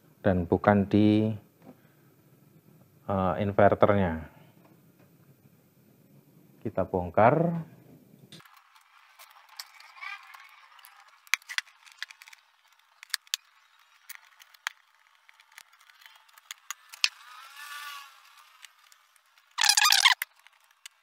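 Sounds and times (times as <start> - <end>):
faint squeak: 19.6 - 20.3.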